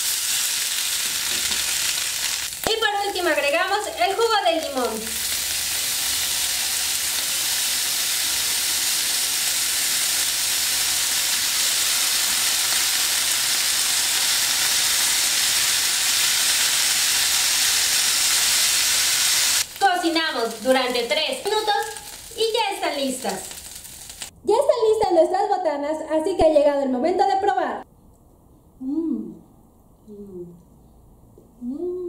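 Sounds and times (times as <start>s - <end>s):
sausages sizzling in a frying pan: 0.0s - 24.3s.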